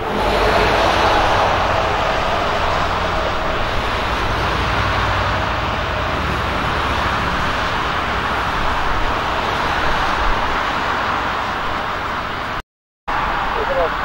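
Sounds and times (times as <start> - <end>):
low rumble: 0.0 - 9.0
jet engines roaring: 0.0 - 12.5.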